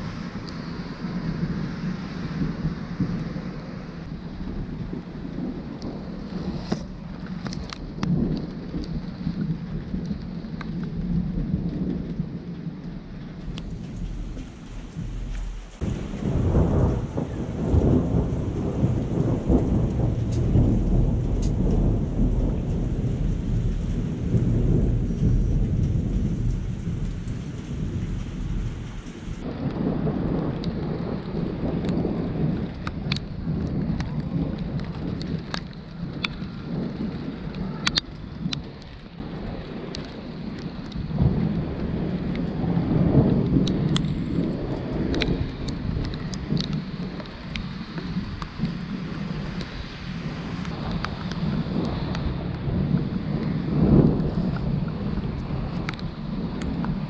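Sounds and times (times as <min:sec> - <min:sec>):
steady rain falling: 0:00.0 - 0:57.0
thunder rumbling: 0:00.0 - 0:57.0
sharp drip ticks: 0:43.4 - 0:48.8, 0:54.0 - 0:57.0.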